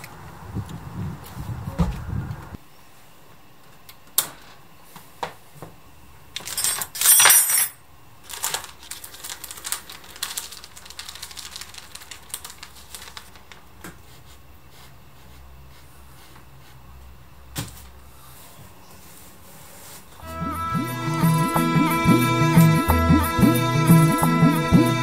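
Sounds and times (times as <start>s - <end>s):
metallic clicks and clinks: 6.4s - 7.8s.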